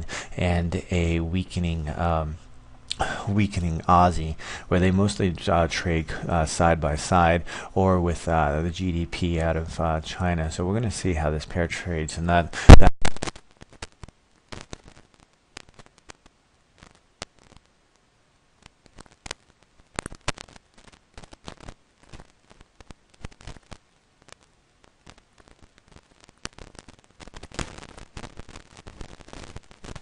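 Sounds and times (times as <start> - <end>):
low hiss: 0.0 - 30.0
crackling clicks: 2.4 - 3.0, 12.6 - 30.0.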